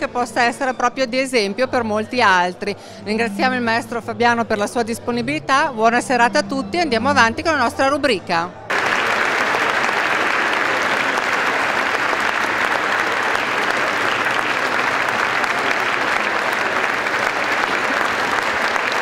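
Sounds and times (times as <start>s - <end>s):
audience applauding: 8.7s - 19.0s.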